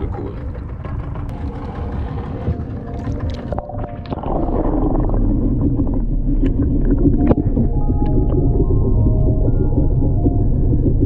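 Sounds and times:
muffled underwater rushing: 0.0s - 11.0s
water splashing: 2.8s - 10.3s.

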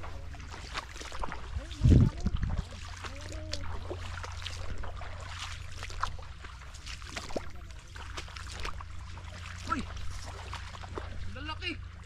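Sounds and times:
splashing through shallow water: 0.0s - 12.0s
steady low rumble: 0.0s - 12.0s.

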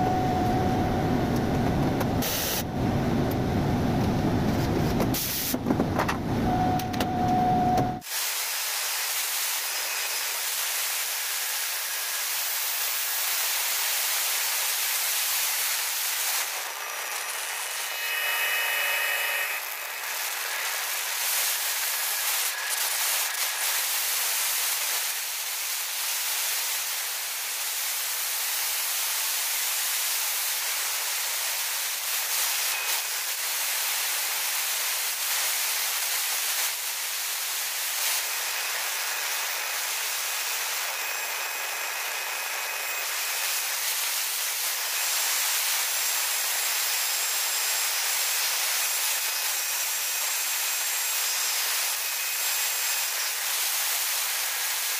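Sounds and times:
air compressor running: 0.0s - 24.7s.

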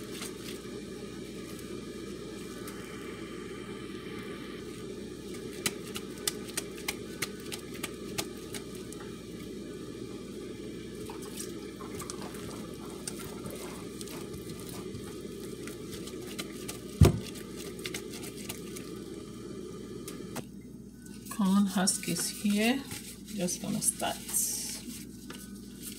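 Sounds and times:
steady low rumble: 0.0s - 11.0s
sticky clicks and smacks of dough: 5.6s - 8.7s.

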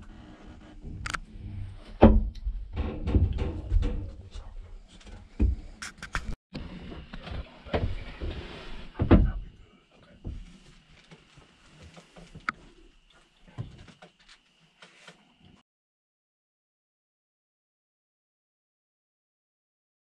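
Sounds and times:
hollow thumps and knocks: 2.0s - 4.2s.

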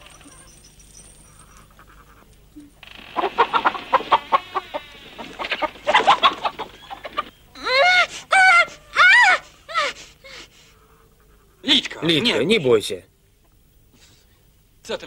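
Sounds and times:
chicken clucking and squawking: 3.1s - 7.5s.

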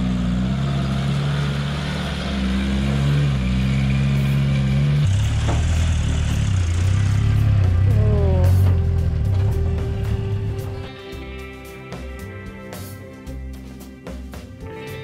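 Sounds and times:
engine revving through mud: 0.0s - 10.7s
deep pickup engine in mud: 0.0s - 10.9s.

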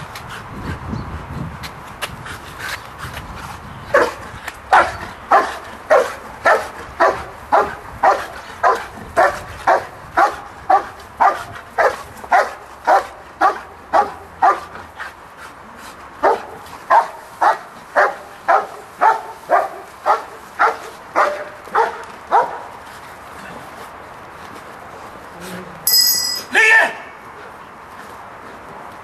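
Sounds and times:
dog barking: 3.9s - 14.7s, 16.2s - 22.7s.

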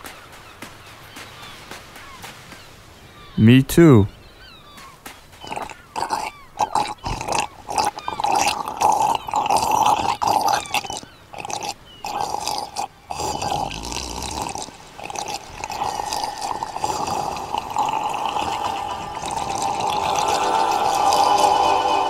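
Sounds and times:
cartoon slurping: 5.4s - 22.0s.

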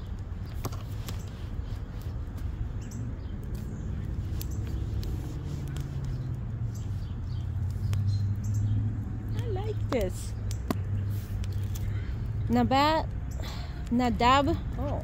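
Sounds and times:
small birds chirping: 0.0s - 15.0s
steady low rumble: 0.0s - 15.0s
sharp clicks: 2.8s - 12.4s.

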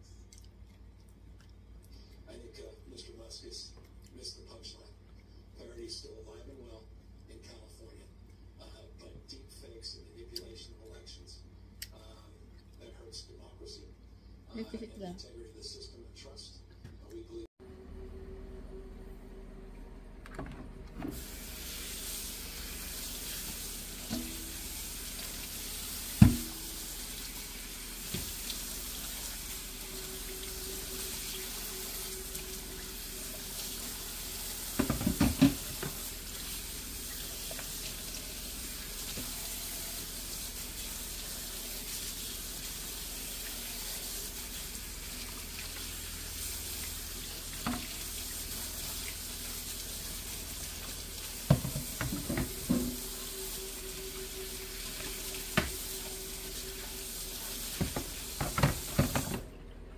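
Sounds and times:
tap water running into sink: 20.3s - 59.5s
pan knocking against sink: 26.1s - 26.8s, 34.8s - 36.0s, 51.5s - 53.0s, 57.8s - 59.4s.

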